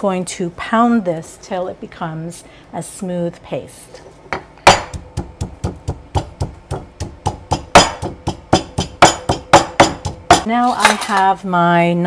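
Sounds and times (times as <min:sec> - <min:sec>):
pestle pounding in stone mortar: 0:04.4 - 0:10.5.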